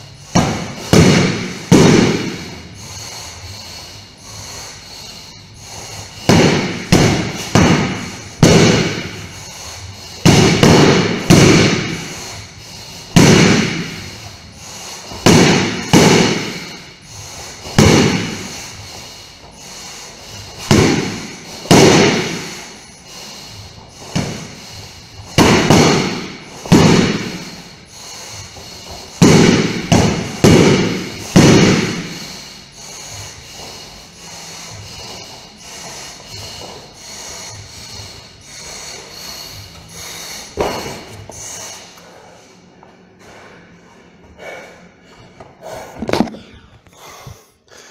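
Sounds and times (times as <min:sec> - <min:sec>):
sword hitting punching bag: 0:00.3 - 0:02.6, 0:06.2 - 0:09.3, 0:10.2 - 0:12.1, 0:13.1 - 0:14.2, 0:15.1 - 0:16.8, 0:17.6 - 0:18.5, 0:20.6 - 0:22.6, 0:24.1 - 0:24.6, 0:25.3 - 0:27.5, 0:29.2 - 0:32.2.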